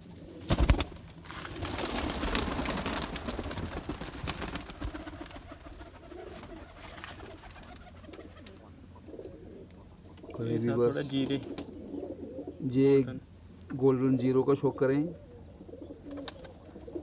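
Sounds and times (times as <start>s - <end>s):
rustling and scraping with clicks: 1.0s - 1.7s
pigeons cooing: 1.5s - 13.1s, 13.8s - 17.0s.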